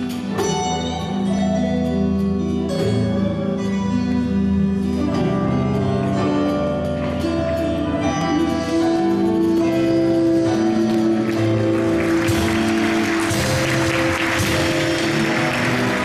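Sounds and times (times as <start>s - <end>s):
live band music: 0.0s - 16.0s
audience applause: 11.1s - 16.0s.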